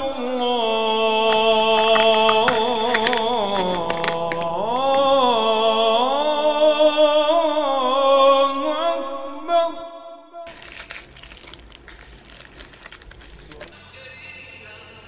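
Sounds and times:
call to prayer voice: 0.0 - 10.4.

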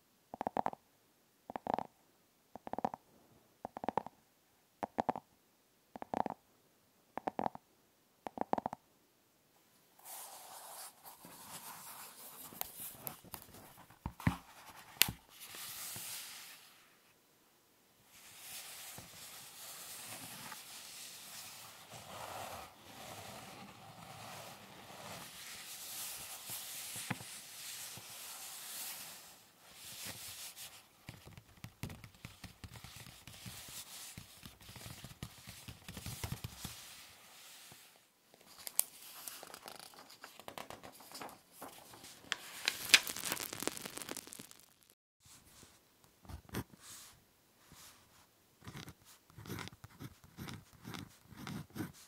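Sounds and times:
book pages rustling: 10.0 - 16.8, 18.2 - 44.9
paper crinkling: 38.4 - 45.0.

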